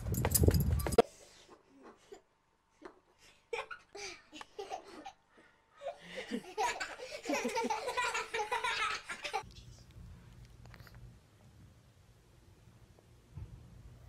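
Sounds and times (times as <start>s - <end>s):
people laughing: 5.9s - 9.4s.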